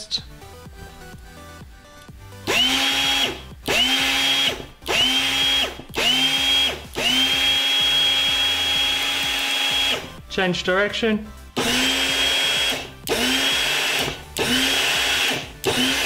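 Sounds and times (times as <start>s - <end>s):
electric motor whine: 2.4s - 10.1s, 11.6s - 16.0s.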